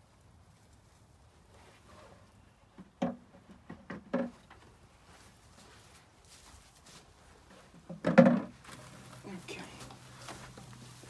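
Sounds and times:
plastic bucket knocks and taps: 2.8s - 4.3s, 7.9s - 8.5s.

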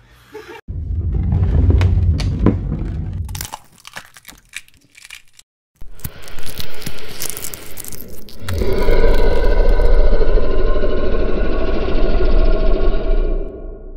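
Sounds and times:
low rumble: 0.7s - 3.4s, 7.2s - 13.9s
eggshell cracks and crunches: 3.3s - 10.0s.

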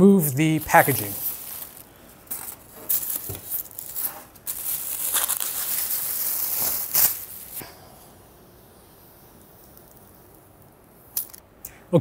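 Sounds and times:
plastic packaging crinkling: 0.6s - 7.6s.

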